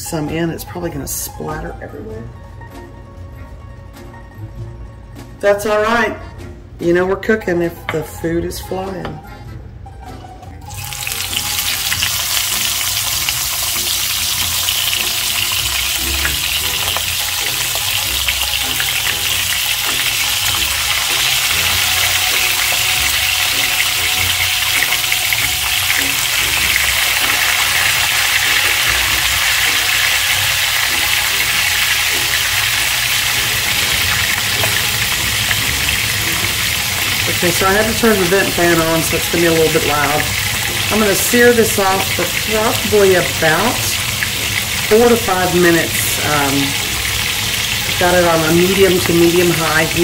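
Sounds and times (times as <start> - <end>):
chicken sizzling in hot oil: 10.6 - 50.0.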